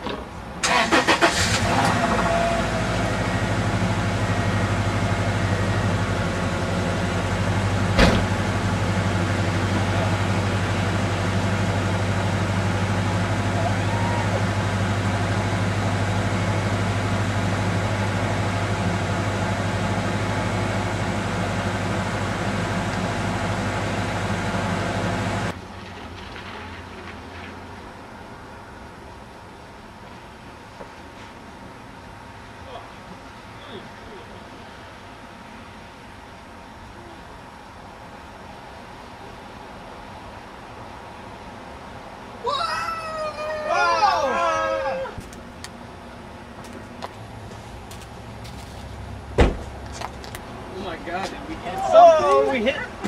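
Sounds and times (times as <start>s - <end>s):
car engine running: 0.9s - 25.5s.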